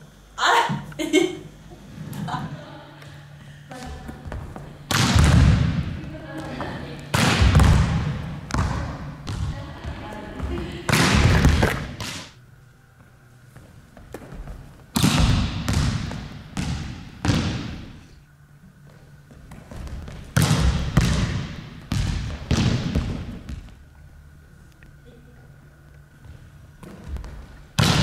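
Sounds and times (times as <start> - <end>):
volleyball smacking on wooden floor: 4.3 - 9.6, 10.9 - 12.3, 14.1 - 18.0, 19.5 - 23.8.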